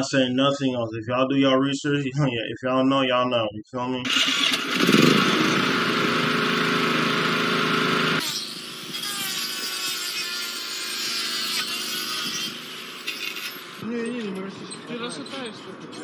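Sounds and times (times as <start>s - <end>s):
petrol generator engine running: 4.1s - 8.9s
power tool whirring into wood: 4.1s - 13.8s.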